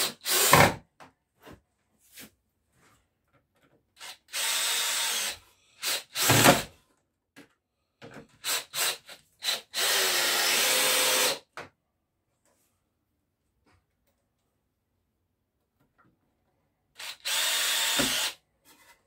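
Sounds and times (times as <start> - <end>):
cordless drill driving screws: 0.0 - 0.6, 4.0 - 6.7, 8.4 - 11.4, 17.0 - 18.4.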